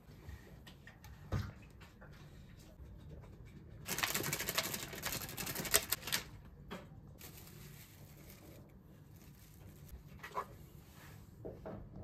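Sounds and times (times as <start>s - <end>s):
plastic bag crinkling: 3.9s - 6.3s.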